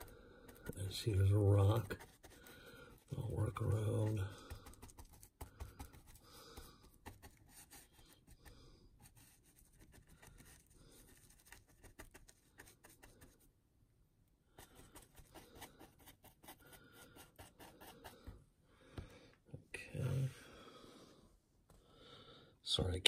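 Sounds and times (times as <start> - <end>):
paintbrush scratching and dabbing: 0.0 - 13.5, 14.6 - 18.3.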